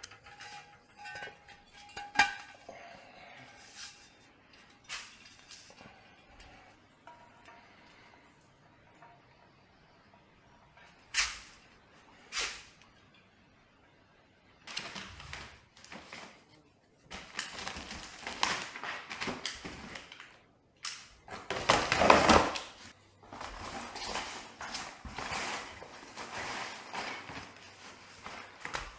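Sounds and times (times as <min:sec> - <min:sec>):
packing peanuts rustling: 0:17.1 - 0:20.4, 0:21.3 - 0:28.9
cardboard box being unpacked: 0:23.2 - 0:28.9.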